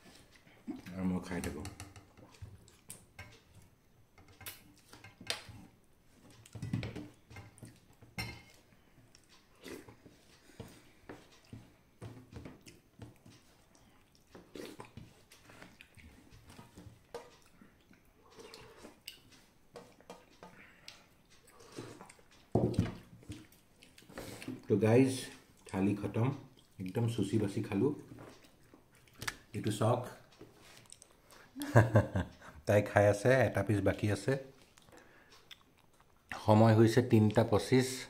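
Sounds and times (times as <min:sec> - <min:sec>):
person chewing: 0:02.3 - 0:03.4, 0:07.5 - 0:11.8, 0:12.4 - 0:22.5, 0:23.2 - 0:24.6, 0:28.4 - 0:29.5, 0:30.6 - 0:31.6, 0:34.6 - 0:36.4.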